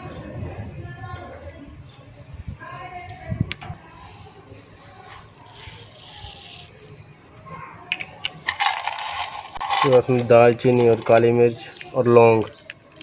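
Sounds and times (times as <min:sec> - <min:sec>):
faint voices of people and children: 0:00.0 - 0:13.0
spice seeds shaken into a pot: 0:08.3 - 0:11.2.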